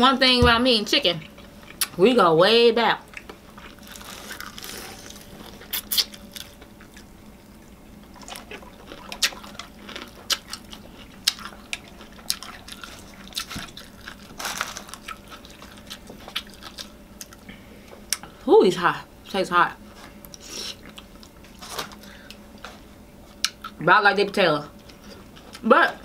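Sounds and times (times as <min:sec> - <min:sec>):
chewing crispy chicken: 0:03.1 - 0:17.5.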